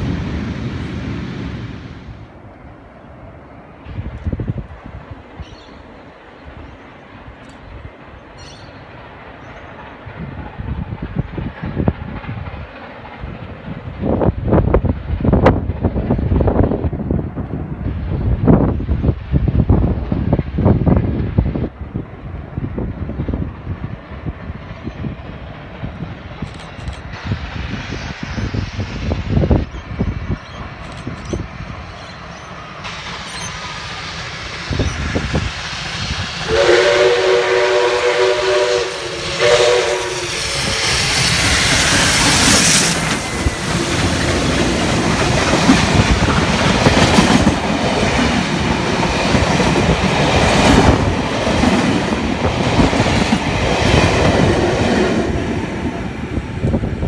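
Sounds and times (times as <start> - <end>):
steam locomotive working: 0.0 - 57.0
train chime horn: 36.5 - 40.2.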